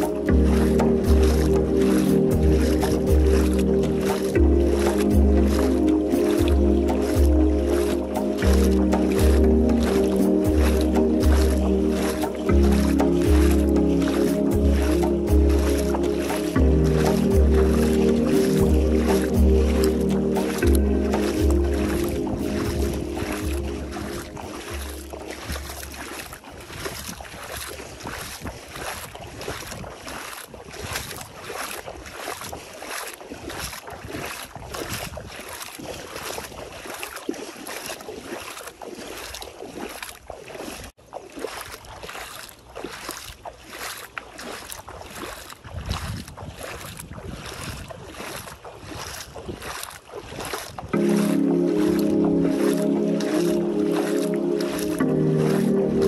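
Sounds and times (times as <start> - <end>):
bare feet wading through water: 0.0 - 56.0.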